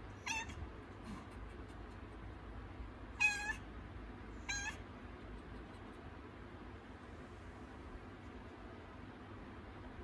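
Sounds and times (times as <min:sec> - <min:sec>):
cat meowing: 0:00.2 - 0:00.6, 0:03.1 - 0:03.6, 0:04.4 - 0:04.8.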